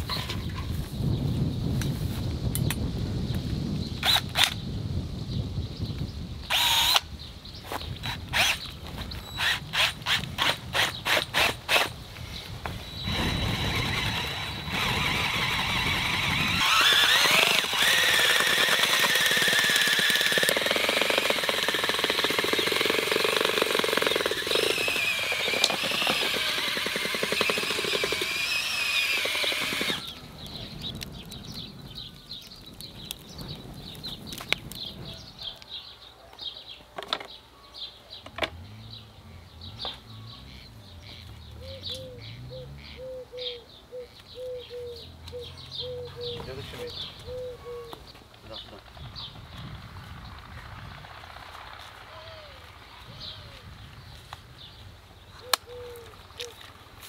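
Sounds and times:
drill mixer churning thick mud: 13.0 - 30.2.

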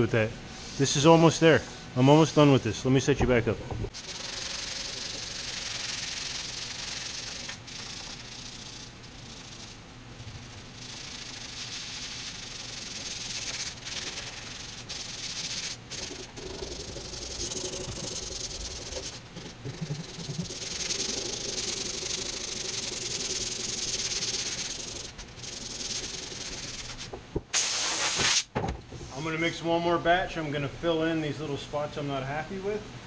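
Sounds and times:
sandpaper rubbing on metal: 3.9 - 28.4.

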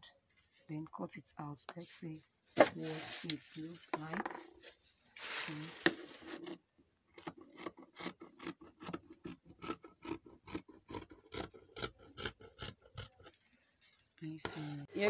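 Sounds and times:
scissors snipping fabric: 7.1 - 13.3.

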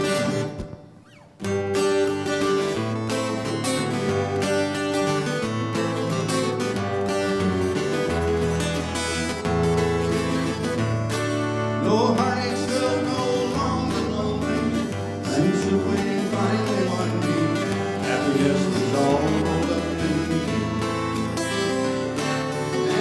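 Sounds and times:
band playing country-rock song: 0.0 - 23.0
man singing: 11.7 - 23.0.

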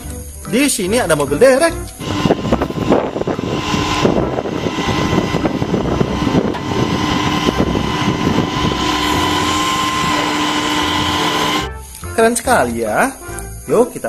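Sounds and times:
high steady whine: 1.9 - 11.9
tow truck engine rumbling: 2.0 - 11.7.

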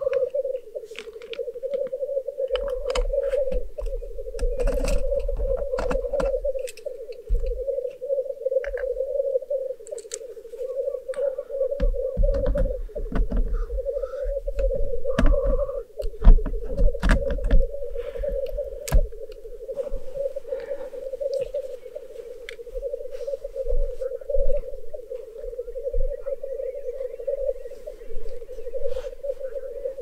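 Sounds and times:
black grouse bubbling chorus: 0.0 - 30.0
sharp clicks and knocks: 11.8 - 13.6, 14.5 - 17.7.

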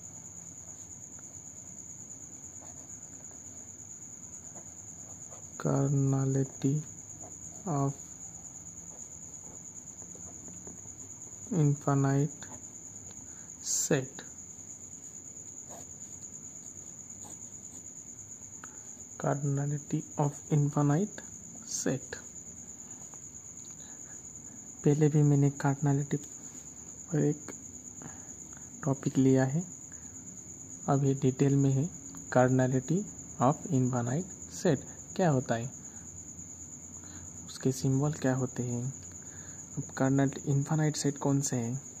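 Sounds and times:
crickets trilling: 0.0 - 42.0
man's voice: 11.5 - 12.5.

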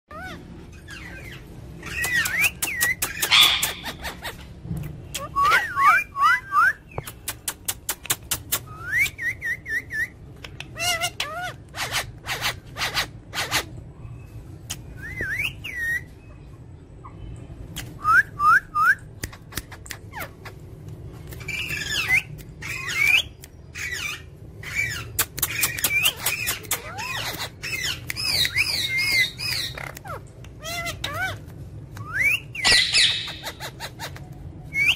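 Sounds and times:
parakeets whistling chirps: 0.1 - 4.4, 5.2 - 7.1, 10.8 - 16.2, 21.4 - 34.9
parakeets squawking: 0.1 - 4.5, 10.6 - 13.9, 19.4 - 31.6, 32.4 - 34.9
sharp clicks: 7.0 - 8.7.

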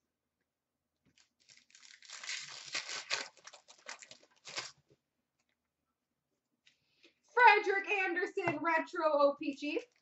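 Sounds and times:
card pack wrapper crinkling and tearing: 1.1 - 4.9.

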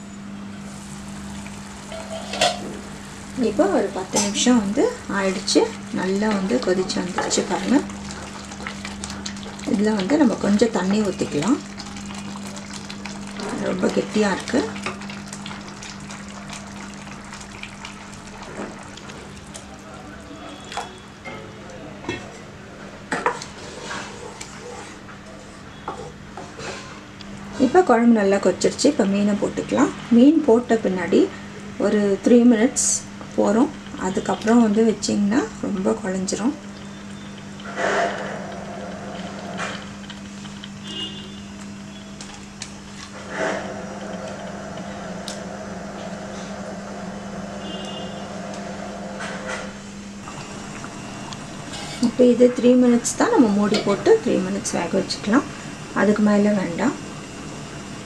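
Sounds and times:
low hum with hiss: 0.0 - 58.0
curry simmering: 0.7 - 21.0.

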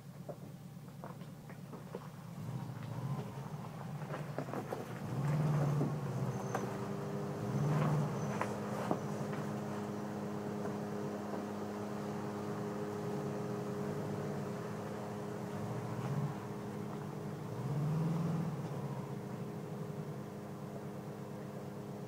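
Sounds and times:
vehicle engine running at low revs: 0.1 - 22.0.

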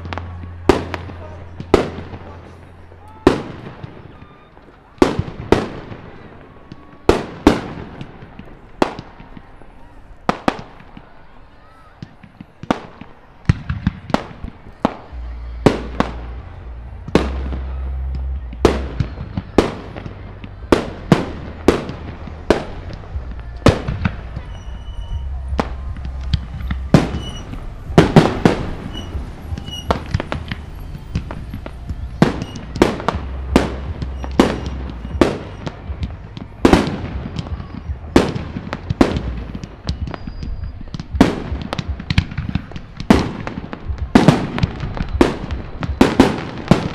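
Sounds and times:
fireworks bangs: 0.0 - 46.9
low rumble: 14.0 - 46.0.

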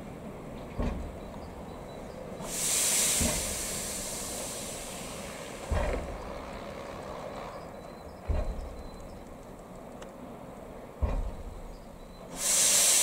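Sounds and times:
steam locomotive hissing steam: 2.4 - 6.2, 12.2 - 13.0
short low thuds: 8.2 - 9.0, 11.0 - 11.9.

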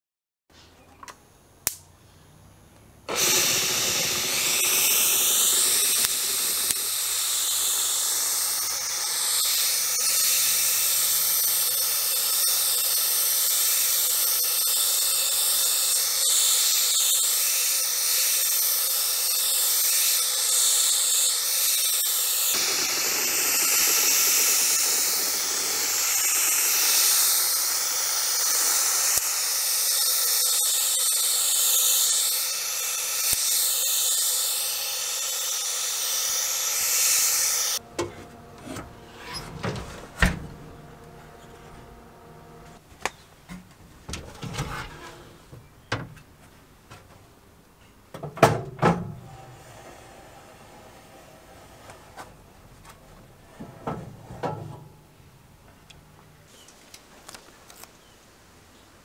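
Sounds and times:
spray gun hissing: 3.1 - 37.8.

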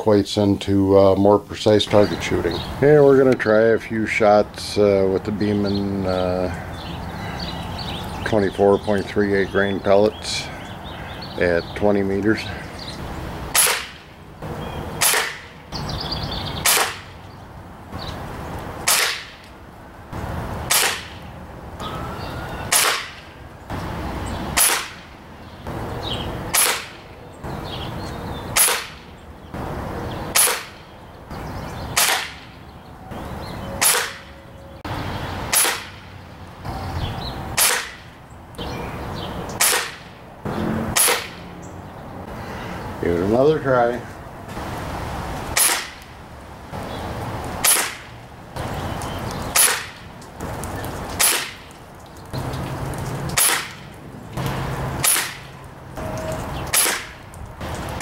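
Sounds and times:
air rifle firing: 13.5 - 14.0, 15.0 - 15.6, 16.6 - 17.1, 18.9 - 19.4, 20.7 - 21.2, 22.7 - 23.3, 24.5 - 25.0, 26.5 - 27.0, 28.6 - 29.0, 30.3 - 30.8, 32.0 - 32.4, 33.8 - 34.3, 35.5 - 36.0, 37.6 - 38.0, 39.6 - 41.4, 45.5 - 46.0, 47.6 - 48.1, 49.6 - 50.0, 51.2 - 51.6, 53.4 - 53.8, 55.0 - 55.4, 56.7 - 57.2.

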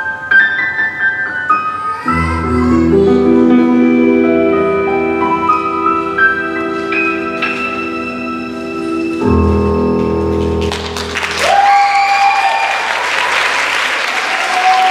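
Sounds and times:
dance music: 2.1 - 11.4
audience applause and cheering: 10.0 - 14.9.

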